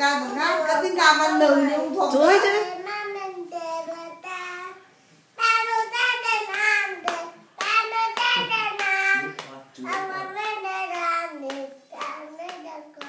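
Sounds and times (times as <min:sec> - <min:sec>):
toddler singing: 0:02.4 - 0:13.0
hands clapping: 0:06.4 - 0:10.3, 0:10.9 - 0:13.0.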